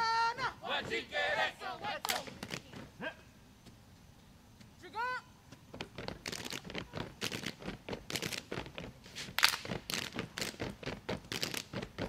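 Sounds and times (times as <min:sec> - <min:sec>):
rubber boots slapping and stamping: 0:05.5 - 0:12.0.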